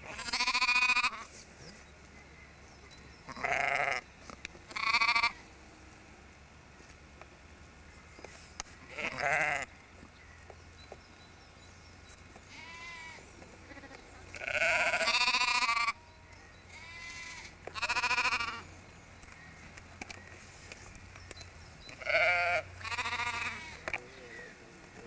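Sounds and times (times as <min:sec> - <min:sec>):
sheep bleating: 0:00.0 - 0:01.2, 0:03.3 - 0:04.0, 0:04.7 - 0:05.4, 0:08.9 - 0:09.7, 0:12.5 - 0:16.1, 0:16.7 - 0:18.7, 0:21.9 - 0:23.9.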